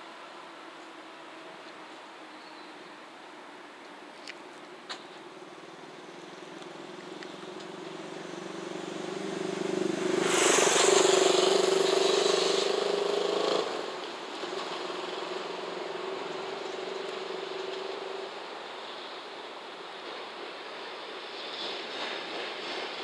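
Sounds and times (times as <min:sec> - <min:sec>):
loud rushing noise: 0:07.8 - 0:16.2.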